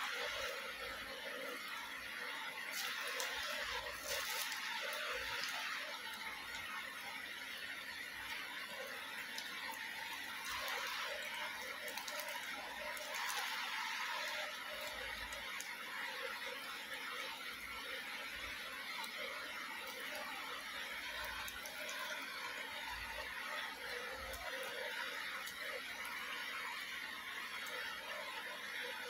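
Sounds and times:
plastic wrappers crinkling: 0:02.7 - 0:06.3, 0:10.2 - 0:15.6.

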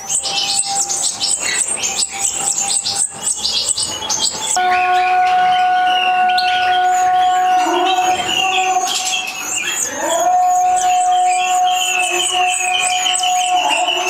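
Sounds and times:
bird chirping: 0:00.0 - 0:14.0
nestlings begging cheeps: 0:00.0 - 0:14.0
long held musical note: 0:04.6 - 0:08.9.

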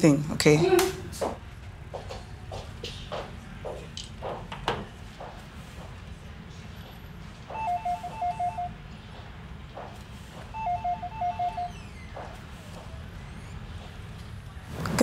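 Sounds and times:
electronic phone ringing: 0:07.5 - 0:08.8, 0:10.6 - 0:11.8.

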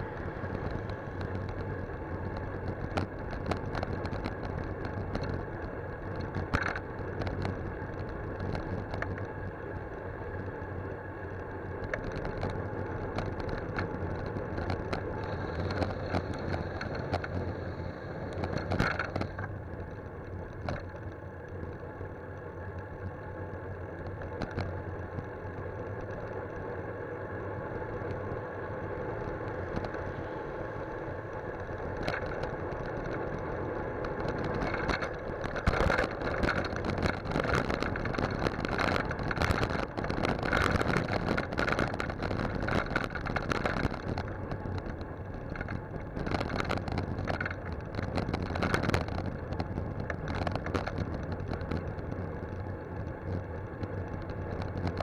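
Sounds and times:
bicycle rattling and knocking: 0:00.0 - 0:26.8, 0:27.4 - 0:55.0
wind and road noise: 0:00.0 - 0:55.0.

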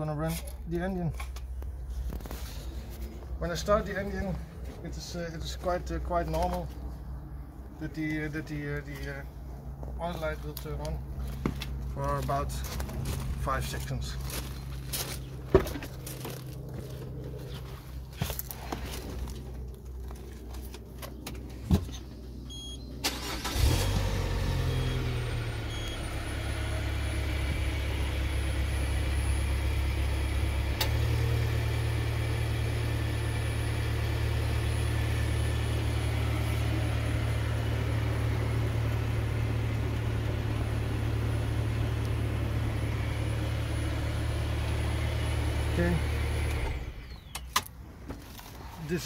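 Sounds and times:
car engine cranking and idling: 0:00.0 - 0:49.0
clicks before engine start: 0:23.0 - 0:24.1.

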